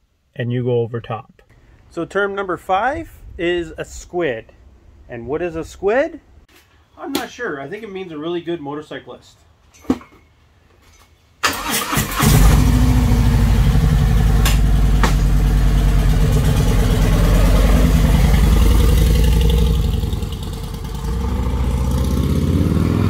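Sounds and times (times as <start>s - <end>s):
motorcycle engine running: 12.2s - 23.0s.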